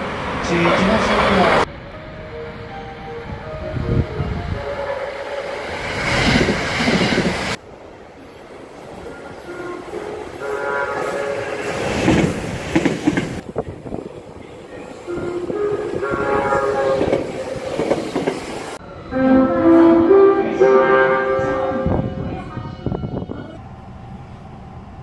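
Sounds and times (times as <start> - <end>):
train horn playing a melody: 2.8 - 5.8, 9.3 - 11.7, 15.1 - 17.6, 18.9 - 23.6
train wheels on rails: 5.0 - 18.8.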